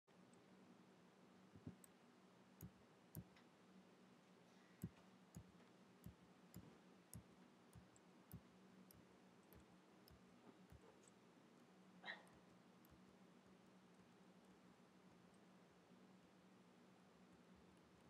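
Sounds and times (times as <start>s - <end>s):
low steady hum: 0.1s - 18.0s
faint mouse clicks: 1.6s - 2.0s, 2.6s - 3.6s, 4.6s - 16.5s.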